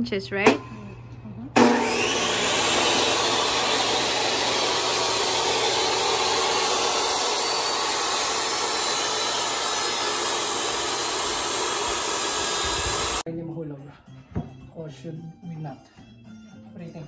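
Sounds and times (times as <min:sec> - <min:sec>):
table saw running: 0:01.6 - 0:13.2.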